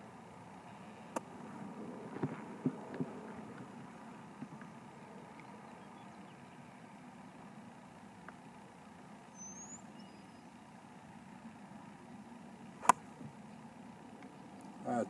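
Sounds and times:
faint low rumble: 0.0s - 15.0s
high chirp: 9.3s - 10.5s.

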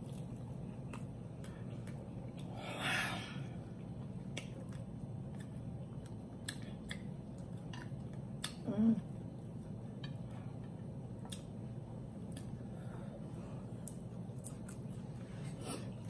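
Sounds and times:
low steady hum: 0.0s - 16.0s
chewing crispy food: 13.8s - 16.0s.

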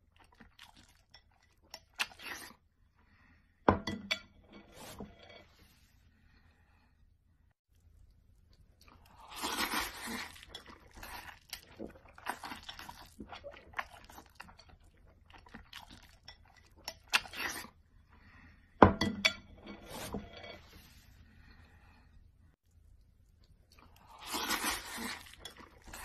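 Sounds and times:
noodles being slurped: 8.8s - 17.8s, 23.8s - 26.0s.

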